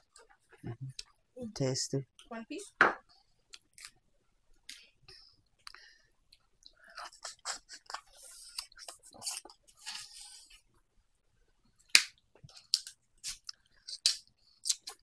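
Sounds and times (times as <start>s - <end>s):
chewing and sucking: 6.6s - 10.6s, 12.5s - 15.0s.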